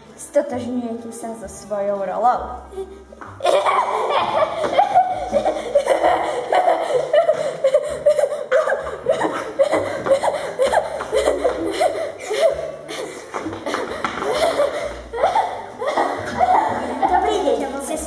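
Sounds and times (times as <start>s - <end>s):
child laughing: 2.7s - 13.1s, 13.7s - 17.4s.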